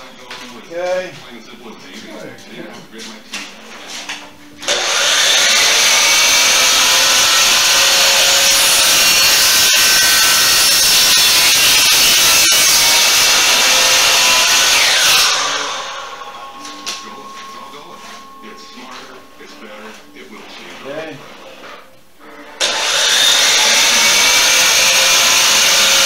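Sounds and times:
miter saw cutting wood: 0:04.6 - 0:21.8, 0:22.5 - 0:26.0.

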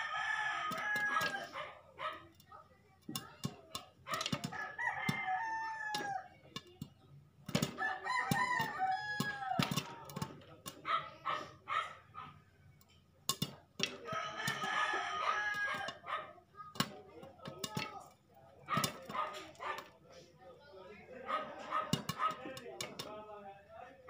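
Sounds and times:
rooster crowing: 0:00.0 - 0:01.6, 0:04.4 - 0:06.3, 0:07.8 - 0:09.7, 0:14.0 - 0:16.0
popcorn popping in pan: 0:00.0 - 0:10.9, 0:12.6 - 0:20.0, 0:21.8 - 0:23.3.

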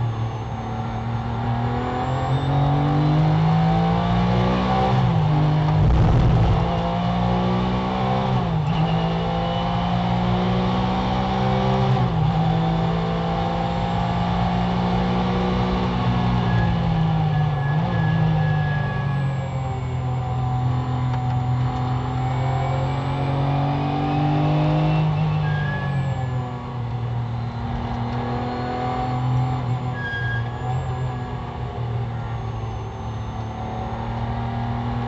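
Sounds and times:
racing engine accelerating: 0:00.0 - 0:35.0
low rumble: 0:05.7 - 0:06.8.

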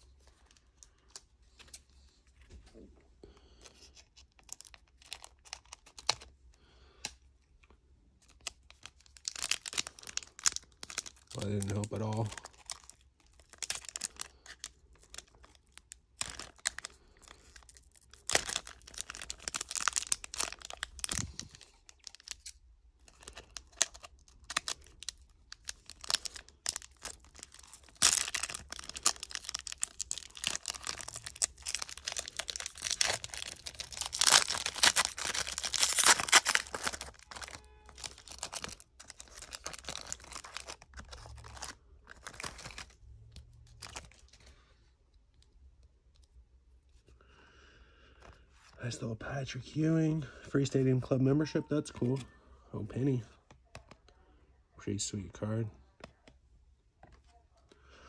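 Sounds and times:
foil wrappers crinkling and tearing: 0:03.5 - 0:07.1, 0:08.2 - 0:43.0, 0:43.7 - 0:44.5.

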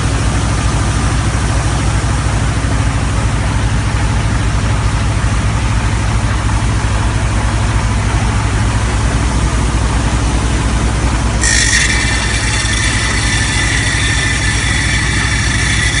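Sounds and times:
drilling rig engine running: 0:10.8 - 0:16.0
high whine of steady tones: 0:10.9 - 0:16.0.

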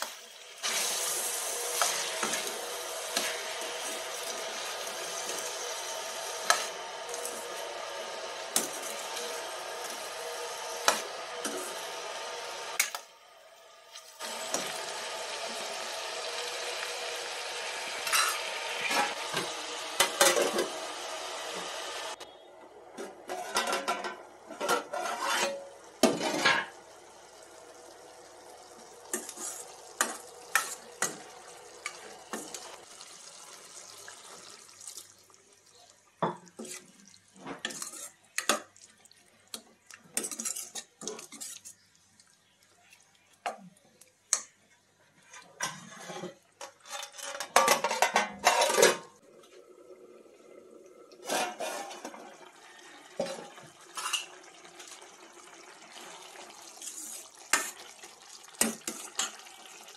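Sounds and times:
spoon scraping metal pan: 0:18.0 - 0:20.7, 0:23.3 - 0:26.8, 0:29.1 - 0:32.7, 0:36.6 - 0:38.6, 0:40.1 - 0:41.8, 0:45.3 - 0:49.1, 0:51.2 - 0:52.2.

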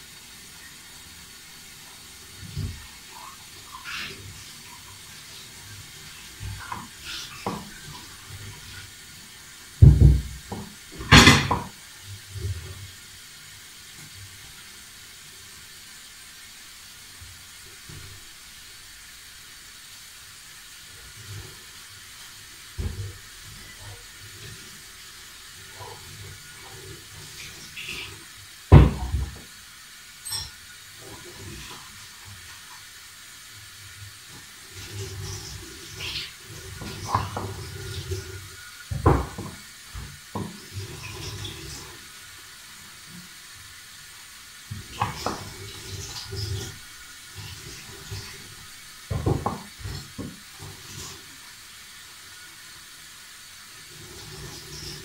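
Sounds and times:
steady hiss: 0:00.0 - 0:55.0.

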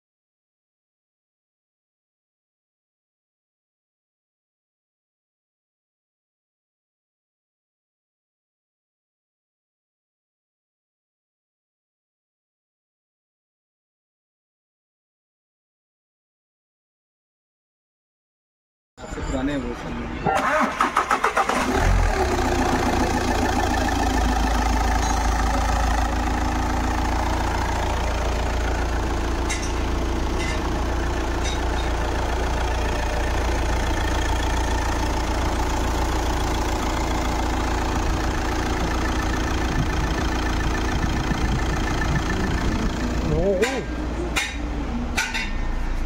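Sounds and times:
diesel engine idling: 0:19.3 - 0:46.0.

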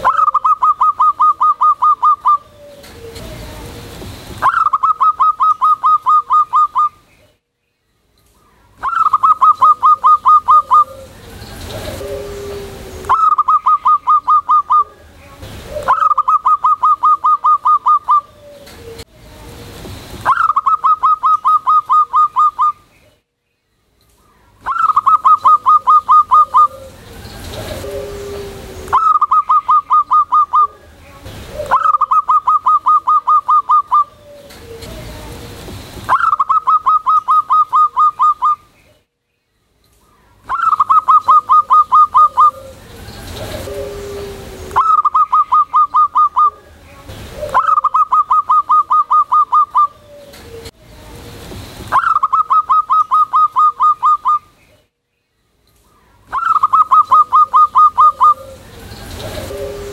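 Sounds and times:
dove staccato cooing: 0:00.0 - 0:07.0, 0:08.8 - 0:19.1, 0:20.2 - 0:22.7, 0:24.6 - 0:38.6, 0:40.5 - 0:50.8, 0:56.3 - 0:59.9.

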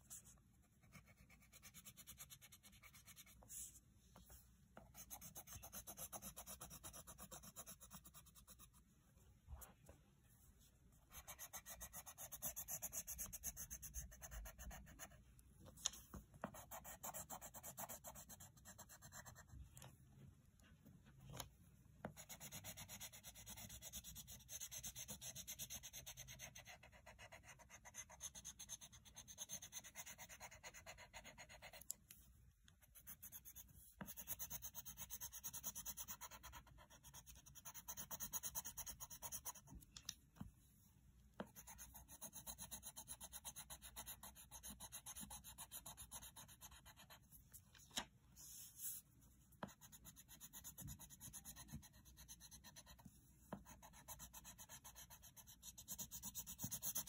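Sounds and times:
pencil scribbling on paper: 0:00.0 - 0:03.8, 0:04.9 - 0:08.8, 0:11.1 - 0:15.2, 0:16.4 - 0:19.5, 0:22.0 - 0:31.9, 0:32.8 - 0:39.8, 0:41.4 - 0:47.3, 0:49.6 - 0:57.0.

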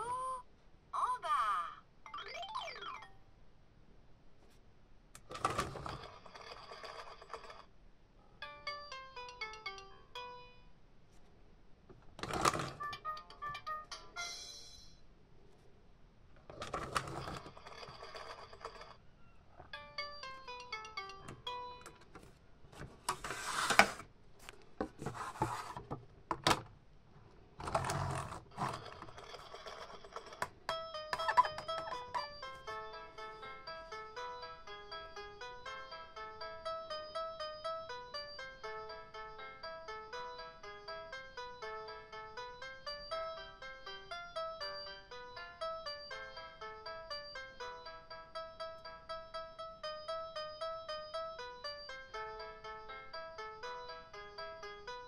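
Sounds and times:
toy rolling down plastic track: 0:05.3 - 0:07.7, 0:16.5 - 0:19.0, 0:27.6 - 0:30.5
plastic pieces sliding on table: 0:22.8 - 0:24.1, 0:24.8 - 0:25.9
plastic scraping rubs: 0:22.8 - 0:24.1, 0:24.8 - 0:26.0
toy click: 0:30.4 - 0:32.5.

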